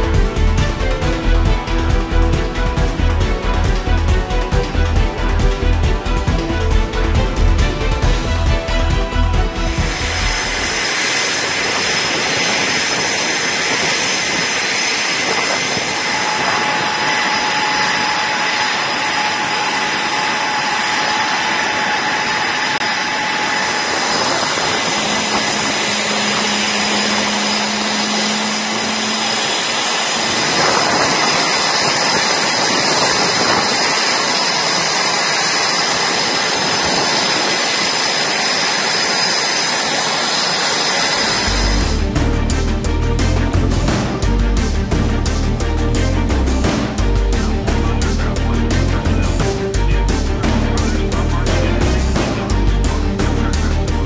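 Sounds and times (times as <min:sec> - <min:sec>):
jet engines roaring and whining: 0:00.0 - 0:54.0
low tone: 0:14.6 - 0:32.7.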